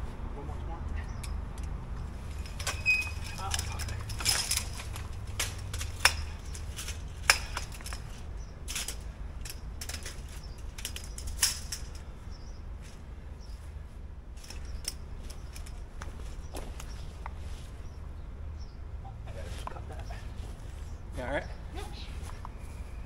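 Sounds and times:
light clicks and clinks: 0:01.0 - 0:12.4, 0:14.4 - 0:17.4.

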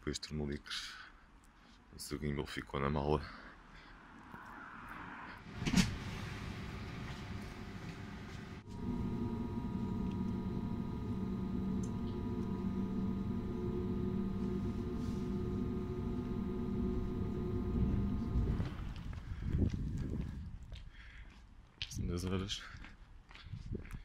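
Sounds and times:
train hum over rumble: 0:05.4 - 0:20.1
station ambience: 0:05.5 - 0:19.2.

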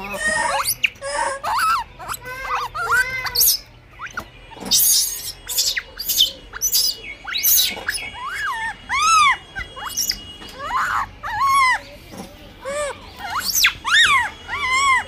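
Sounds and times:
monkey coo calls: 0:00.0 - 0:11.9, 0:12.6 - 0:15.0
monkey screeching: 0:00.0 - 0:11.9, 0:12.6 - 0:15.0.

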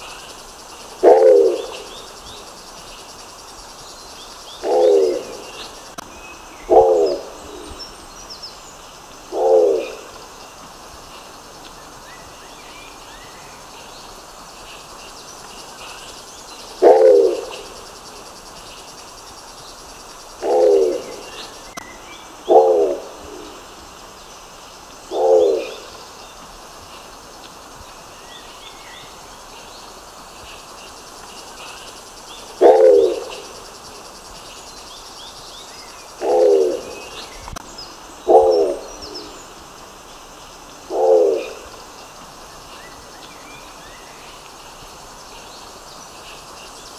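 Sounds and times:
pigeon calling: 0:16.8 - 0:17.6, 0:20.4 - 0:21.1.

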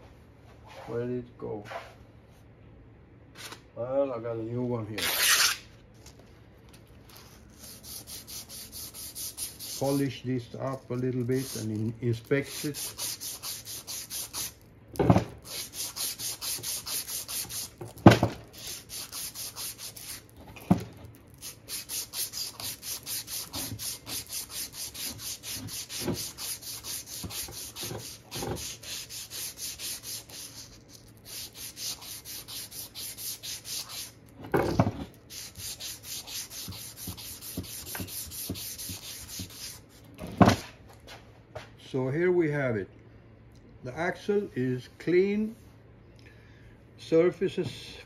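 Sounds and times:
abrasive cloth polishing steel shaft: 0:07.5 - 0:14.6, 0:15.4 - 0:20.3, 0:21.4 - 0:34.2, 0:35.3 - 0:40.0.

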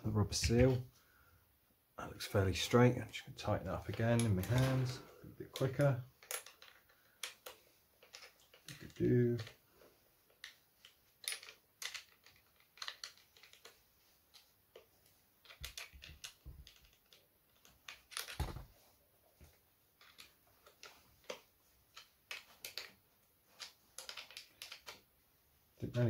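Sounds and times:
small parts clicking and tapping: 0:03.8 - 0:09.6, 0:10.2 - 0:18.7, 0:19.4 - 0:25.1.

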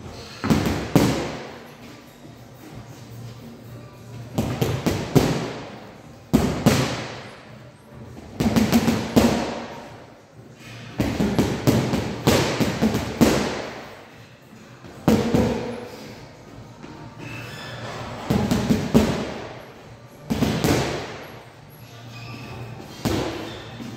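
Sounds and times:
boxing gloves hitting punching bag: 0:00.4 - 0:01.5, 0:04.4 - 0:05.7, 0:06.3 - 0:07.3, 0:08.2 - 0:09.8, 0:10.9 - 0:13.9, 0:15.0 - 0:15.8, 0:18.2 - 0:19.5, 0:20.3 - 0:21.3, 0:22.9 - 0:23.9.

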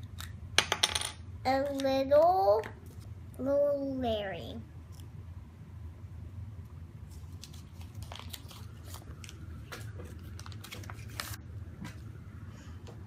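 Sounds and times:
low steady hum: 0:00.0 - 0:13.0
plastic packet crinkling: 0:07.2 - 0:11.4.

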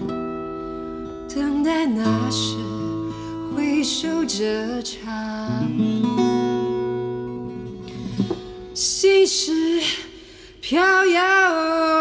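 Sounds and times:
acoustic guitar: 0:00.0 - 0:12.0
woman singing: 0:01.0 - 0:06.4, 0:08.2 - 0:12.0.

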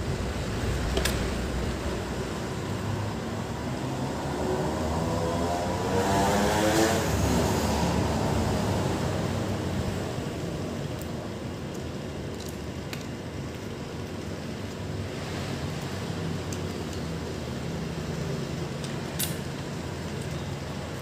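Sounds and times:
low background rumble: 0:00.0 - 0:04.0
vehicle passing: 0:00.0 - 0:06.5.

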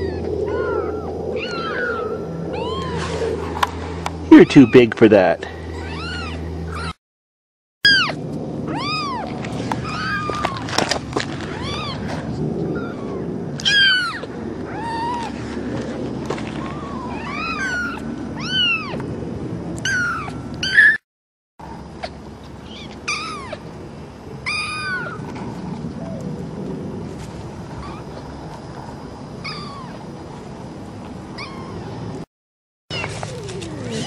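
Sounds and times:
kittens mewing: 0:00.0 - 0:03.4, 0:04.3 - 0:07.0, 0:07.8 - 0:10.8, 0:16.5 - 0:19.0, 0:19.8 - 0:21.0, 0:22.0 - 0:23.7, 0:24.4 - 0:25.3, 0:29.4 - 0:30.0, 0:31.4 - 0:32.0.

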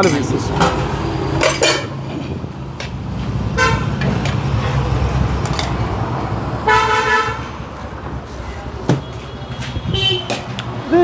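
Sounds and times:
traffic rumble: 0:00.0 - 0:11.0
vehicle horn tooting: 0:03.6 - 0:03.9, 0:06.7 - 0:07.5, 0:08.9 - 0:10.4.

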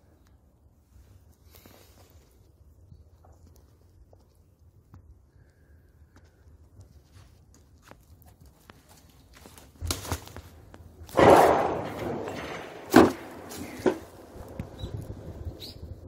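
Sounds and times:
footsteps on rough ground: 0:06.7 - 0:15.2
scraping rustle: 0:07.0 - 0:15.0.

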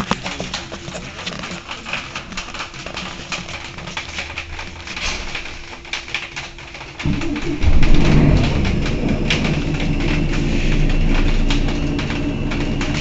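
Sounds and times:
loud deep engine sound: 0:07.0 - 0:13.0
bus engine idling: 0:07.1 - 0:13.0.

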